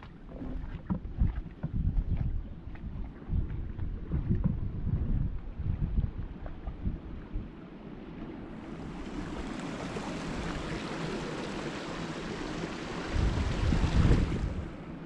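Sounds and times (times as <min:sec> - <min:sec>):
wind buffeting microphone: 0:00.5 - 0:07.6, 0:08.6 - 0:15.0
water rushing over weir: 0:08.2 - 0:15.0.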